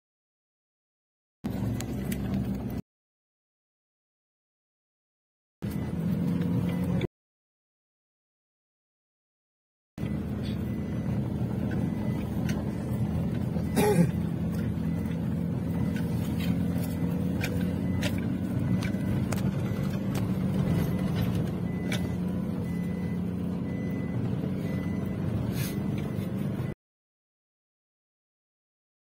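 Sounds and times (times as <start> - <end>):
engine and road drone: 1.4 - 2.8, 5.6 - 7.1, 10.0 - 26.8.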